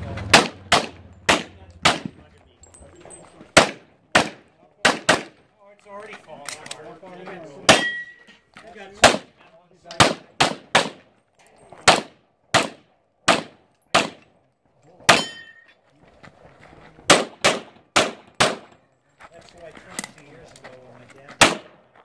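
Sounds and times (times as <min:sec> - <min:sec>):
pistol shots: 0:00.2 - 0:02.3, 0:03.5 - 0:05.4, 0:07.6 - 0:08.1, 0:09.0 - 0:11.1, 0:11.8 - 0:14.3, 0:17.1 - 0:18.8, 0:21.4 - 0:21.8.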